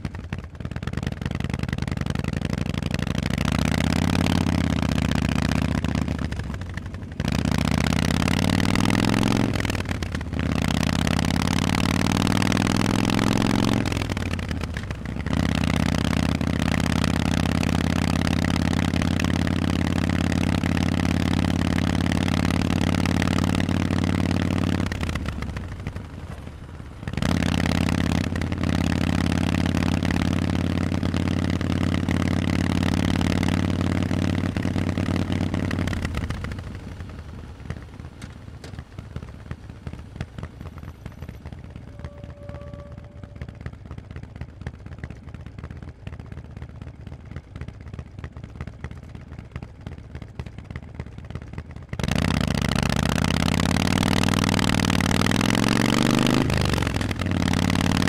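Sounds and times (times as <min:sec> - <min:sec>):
motorcycle exhaust note: 0:26.9 - 0:46.7.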